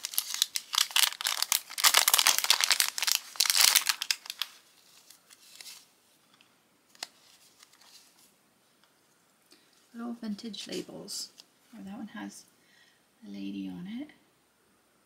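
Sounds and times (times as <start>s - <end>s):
cellophane bag crinkling: 0.0s - 5.9s
faint paper rustling: 0.0s - 8.4s.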